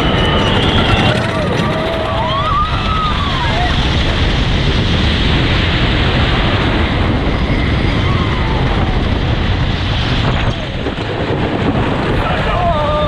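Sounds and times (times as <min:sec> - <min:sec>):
roller coaster rumbling on track: 0:00.0 - 0:13.0
wind rushing over microphone: 0:00.0 - 0:13.0
rider yelling: 0:12.2 - 0:13.0.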